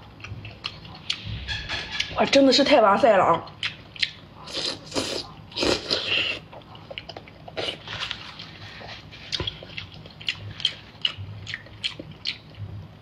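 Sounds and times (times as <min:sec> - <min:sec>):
person slurping oyster: 0:04.4 - 0:06.5
wet chewing mouth clicks: 0:09.3 - 0:12.7.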